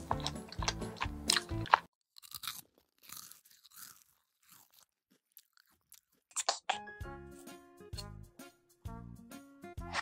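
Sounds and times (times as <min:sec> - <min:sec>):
person chewing: 0:00.0 - 0:06.9.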